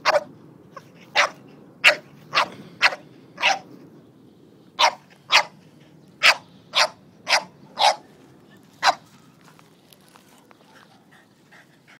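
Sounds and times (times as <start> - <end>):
dog barking: 0.0 - 0.3, 1.1 - 3.7, 4.8 - 5.6, 6.2 - 8.1, 8.8 - 9.0.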